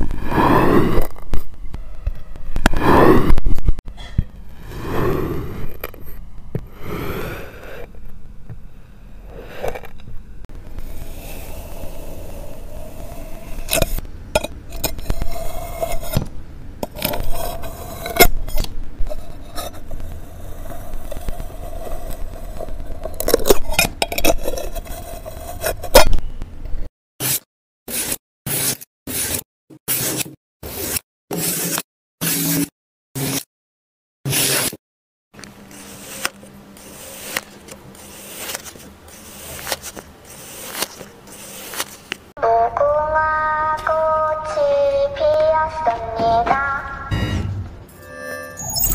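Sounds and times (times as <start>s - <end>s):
tool scraping sand on glass: 35.7s - 42.1s.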